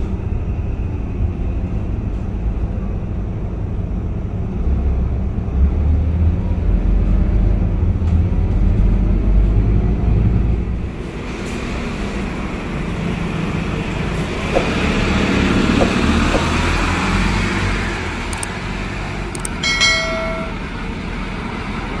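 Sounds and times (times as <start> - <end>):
bus engine and road rumble: 0.0 - 22.0
light clicks: 18.3 - 18.5.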